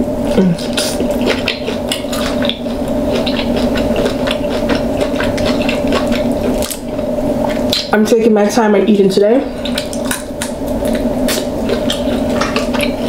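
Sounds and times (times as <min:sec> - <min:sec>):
low hum: 0:00.0 - 0:13.0
wet squishing: 0:00.6 - 0:07.9.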